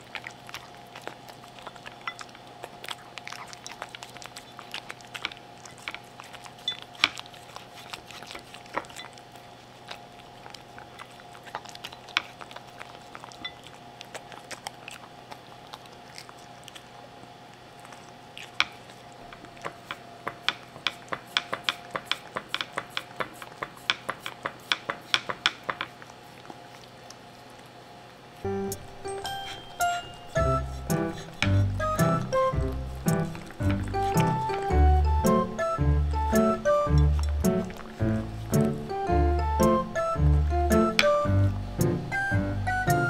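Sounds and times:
dog licking and chewing: 0.0s - 43.0s
faint steady hum: 0.0s - 43.0s.

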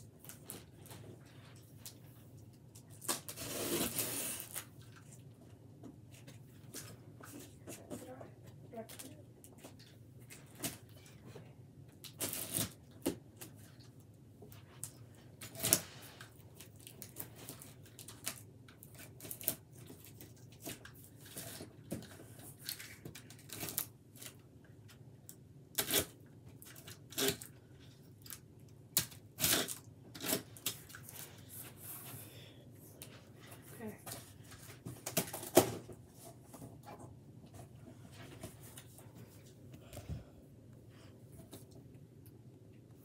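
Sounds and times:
packing tape ripping: 3.0s - 4.7s, 12.1s - 12.8s, 15.4s - 15.9s, 22.6s - 24.4s, 25.7s - 27.5s, 28.9s - 31.2s.

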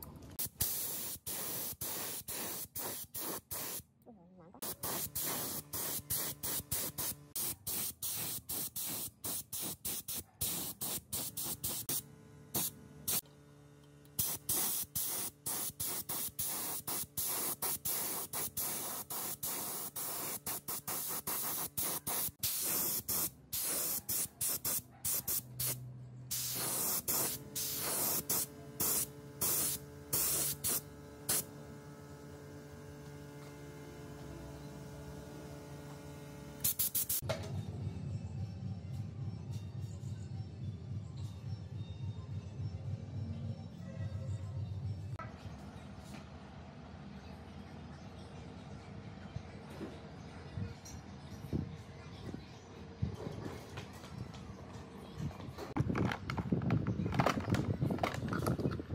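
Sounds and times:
paint spray hissing: 0.4s - 3.8s, 4.6s - 13.2s, 14.2s - 31.5s, 36.6s - 37.2s.

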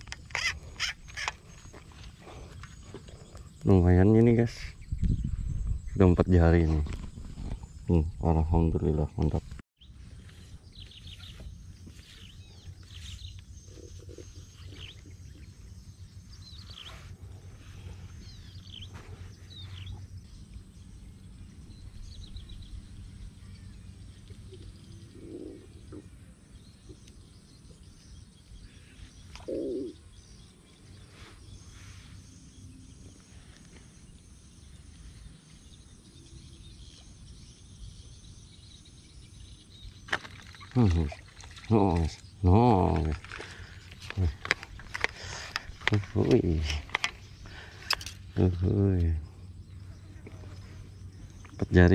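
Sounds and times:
steady low rumble: 0.0s - 28.8s.

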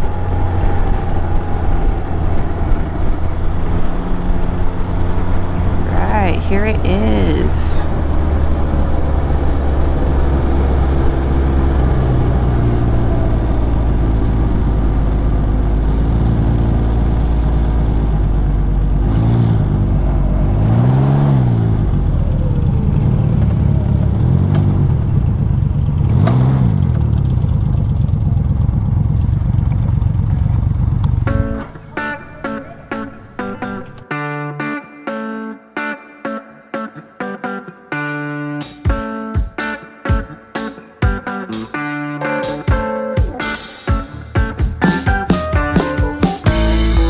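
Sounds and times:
engine revving: 7.7s - 34.1s.

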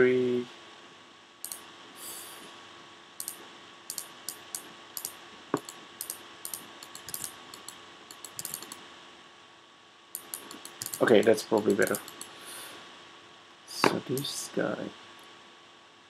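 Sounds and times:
faint steady hum: 0.0s - 16.0s
mouse and keyboard clicks: 1.4s - 1.6s, 3.2s - 8.8s, 10.2s - 11.2s, 11.8s - 12.3s.

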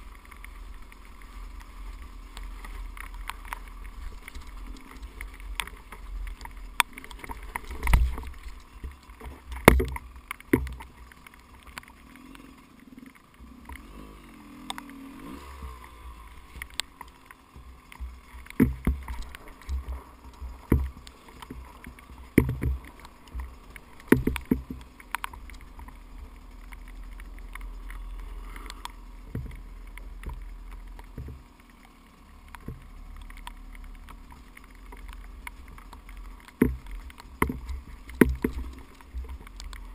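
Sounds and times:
dirt bike engine rumble: 0.0s - 39.9s
knocks and thumps on rocks: 2.6s - 11.9s, 16.5s - 27.7s, 32.6s - 39.9s.

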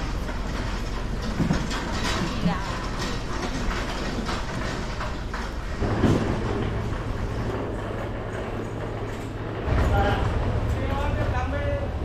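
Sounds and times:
rolling clatter: 0.0s - 12.0s
steady low hum: 0.0s - 12.0s.

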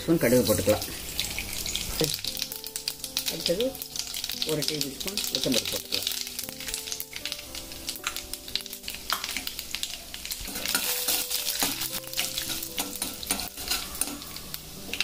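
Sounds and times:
seeds crackling in hot oil: 0.0s - 15.0s
spoon stirring in pan: 9.1s - 15.0s.

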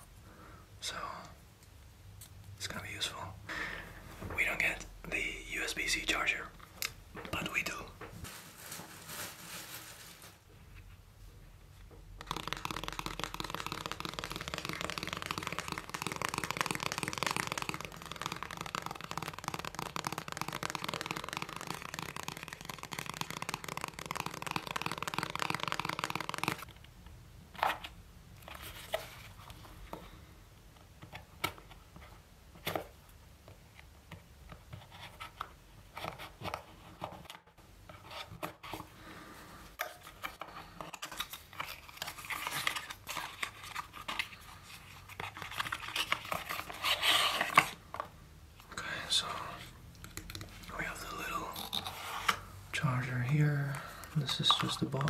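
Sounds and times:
cardboard packaging rustling: 7.4s - 10.5s, 40.0s - 48.1s.

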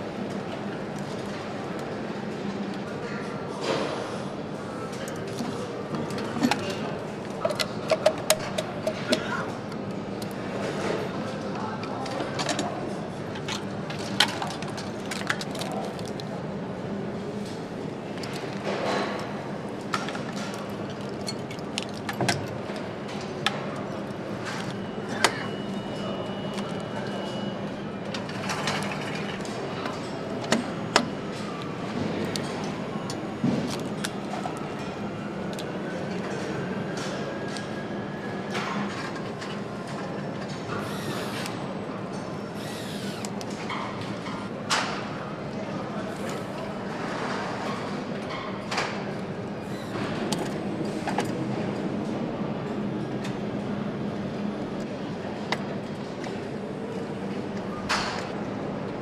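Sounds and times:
machinery hum: 0.0s - 59.0s
clicks and clacks of parts: 7.3s - 11.0s
electric screwdriver whirring: 42.6s - 43.3s.

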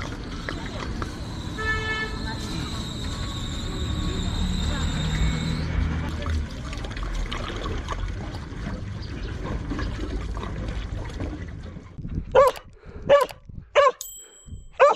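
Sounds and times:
water pouring into plastic container: 6.0s - 11.9s
dog barking: 12.3s - 14.0s.

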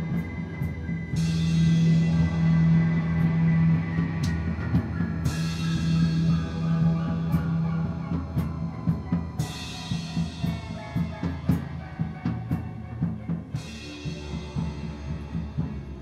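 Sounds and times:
drum kit beat: 0.0s - 16.0s.

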